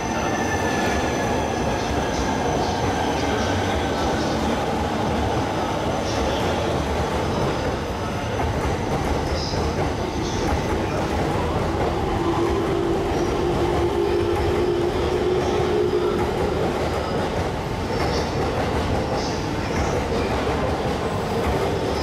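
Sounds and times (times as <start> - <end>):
train wheel rumble: 0.0 - 22.0
rail-joint clatter: 16.2 - 22.0.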